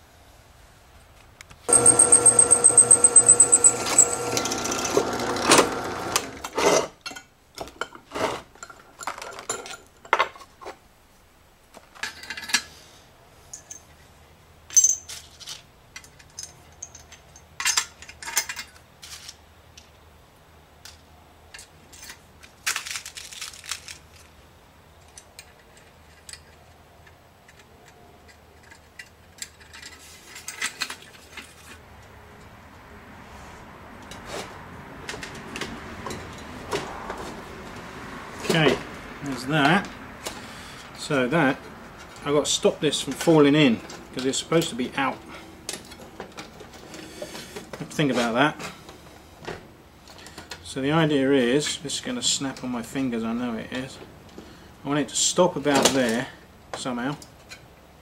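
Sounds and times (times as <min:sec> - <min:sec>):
small steel parts clinking: 0:01.7 - 0:04.9, 0:08.6 - 0:10.5, 0:11.9 - 0:12.7, 0:13.5 - 0:14.0, 0:14.7 - 0:19.4, 0:20.8 - 0:24.3, 0:25.0 - 0:31.8.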